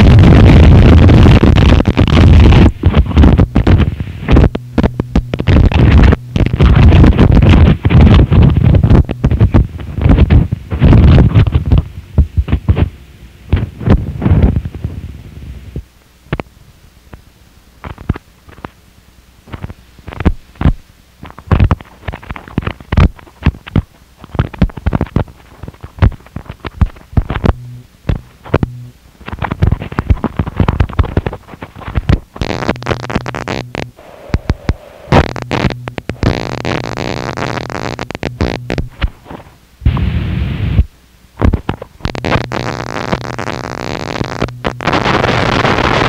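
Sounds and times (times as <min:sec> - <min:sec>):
low hum: 0:00.0 - 0:15.9, 0:26.3 - 0:46.0
distorted noise bursts: 0:00.0 - 0:16.5, 0:17.8 - 0:46.0.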